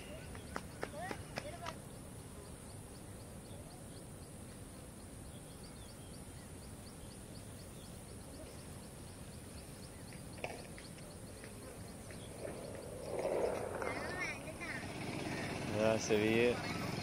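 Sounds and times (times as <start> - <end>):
steady low rumble: 11.1 - 16.1.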